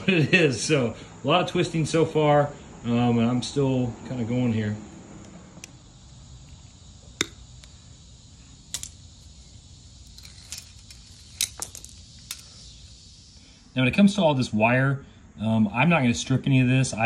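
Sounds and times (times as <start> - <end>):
clicks and clinks of metal fittings: 8.7 - 9.0, 10.0 - 12.6.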